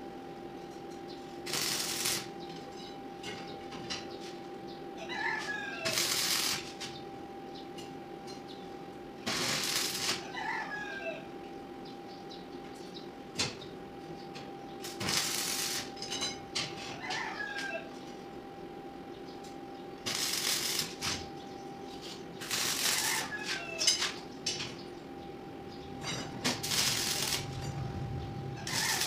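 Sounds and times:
faint steady hum: 0.0s - 29.0s
arc welder crackling: 0.8s - 3.7s, 5.2s - 7.8s, 8.9s - 10.7s, 14.3s - 18.3s, 19.4s - 25.0s, 25.6s - 29.0s.

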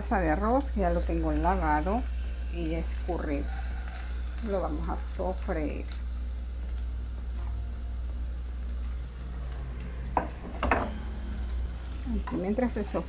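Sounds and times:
rice sizzling in hot oil: 0.0s - 13.0s
steady low hum: 0.0s - 13.0s.

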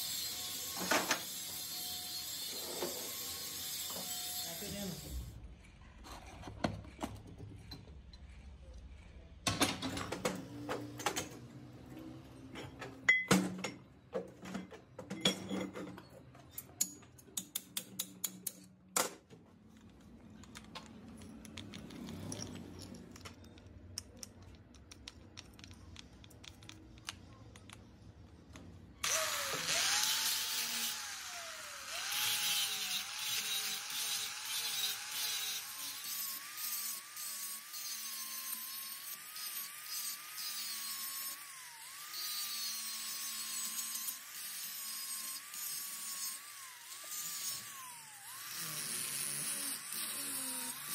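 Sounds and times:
angle grinder grinding metal: 0.0s - 5.3s, 29.0s - 50.9s
metal tools clicking and clanking: 12.5s - 19.2s, 20.3s - 27.7s.

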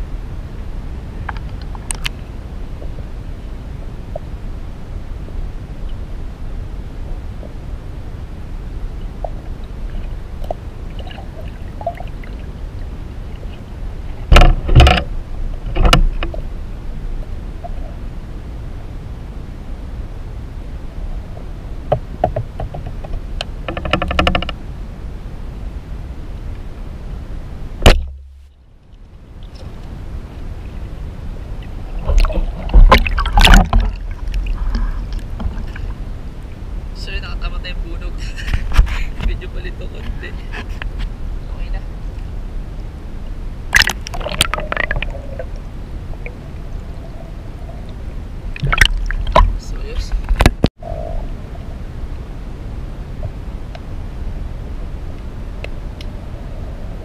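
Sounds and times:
low underwater rumble: 0.0s - 37.0s, 37.8s - 57.0s
water splashing and sloshing: 0.6s - 18.3s, 27.8s - 36.9s, 42.0s - 50.7s
faint underwater clicks: 1.2s - 3.0s.

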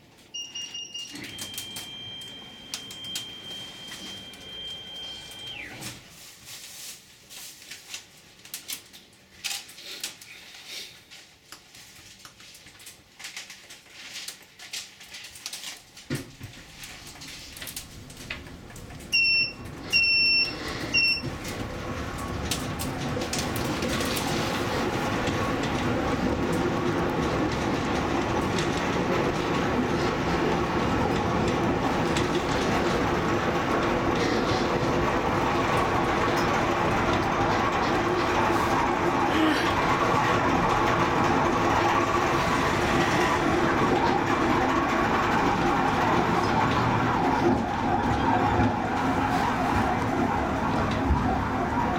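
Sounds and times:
funicular car running on rails: 0.3s - 6.0s, 16.1s - 51.9s
short electronic beeps: 0.4s - 5.8s, 19.1s - 21.3s.

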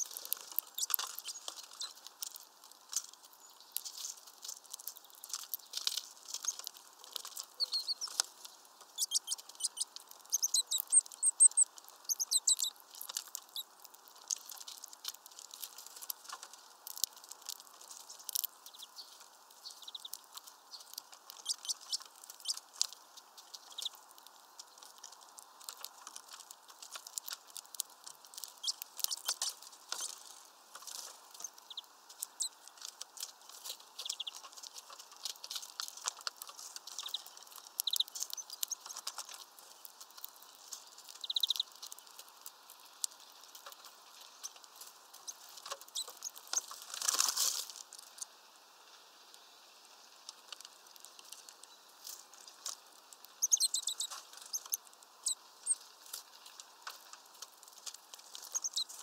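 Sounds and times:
high bird chirps: 0.0s - 2.0s, 7.5s - 8.2s, 8.9s - 12.8s, 18.6s - 22.6s, 23.6s - 24.0s, 28.6s - 29.4s, 31.4s - 32.6s, 34.0s - 34.5s, 36.9s - 39.0s, 41.2s - 41.7s, 53.4s - 55.8s, 58.5s - 58.9s
birds pecking seeds: 0.0s - 59.0s.

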